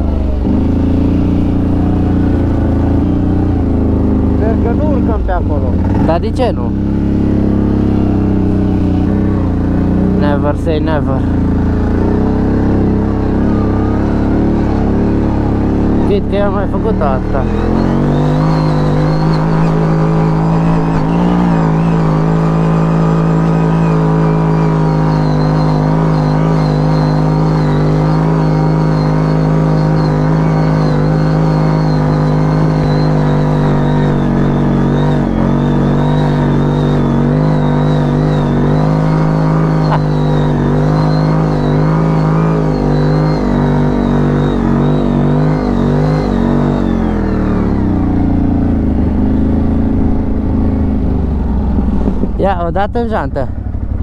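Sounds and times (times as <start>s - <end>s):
atv engine revving high: 0.0s - 54.0s.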